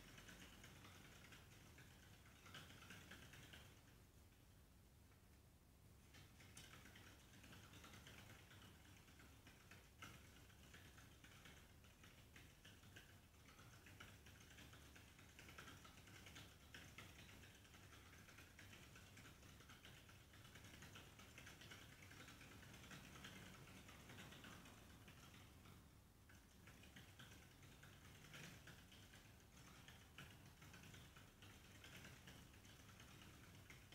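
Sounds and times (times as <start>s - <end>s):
hamster running in exercise wheel: 0.0s - 4.6s, 6.0s - 33.9s.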